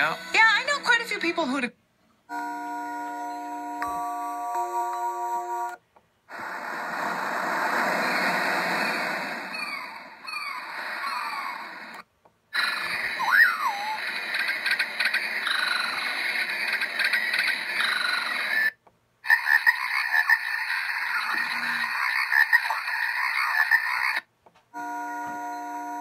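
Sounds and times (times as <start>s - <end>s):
chorus of chirping and croaking: 9.5s - 11.8s, 12.6s - 24.3s
whistled bird call from speaker: 13.2s - 14.0s.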